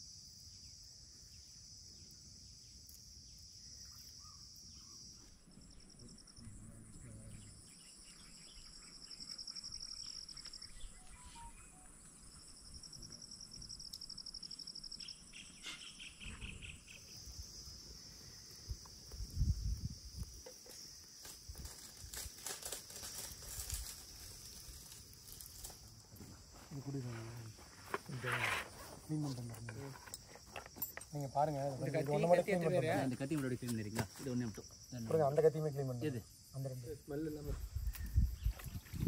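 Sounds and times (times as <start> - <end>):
insects trilling: 0.0 - 39.0
clicks and crackles: 20.4 - 24.0.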